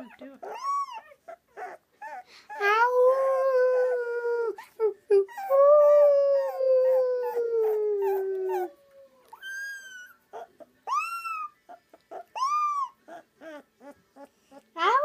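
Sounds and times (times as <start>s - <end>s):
puppy howling: 0.4s - 15.0s
boy howling: 2.6s - 4.6s, 5.5s - 9.2s.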